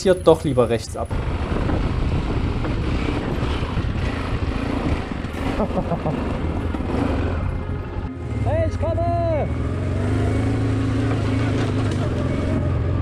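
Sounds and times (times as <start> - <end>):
motorcycle engine rumbling: 0.0 - 13.0
wind on microphone: 1.1 - 5.5.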